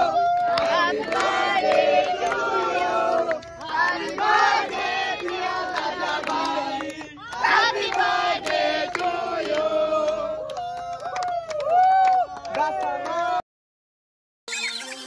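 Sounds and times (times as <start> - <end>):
group singing and chanting: 0.0 - 10.9, 12.6 - 13.4
hand claps: 0.0 - 13.3.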